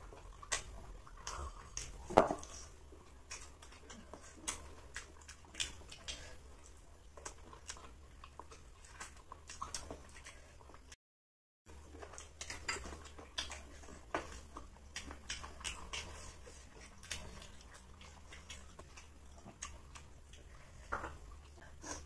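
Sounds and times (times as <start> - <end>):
steady low hum: 0.0 - 11.0
wet chewing and smacking: 0.0 - 11.0, 11.7 - 22.0.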